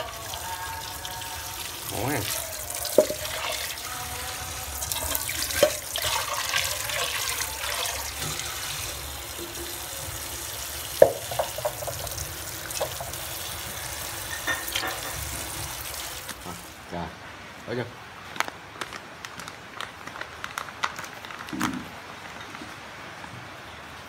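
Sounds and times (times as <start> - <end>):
water running and splashing: 0.0 - 16.8.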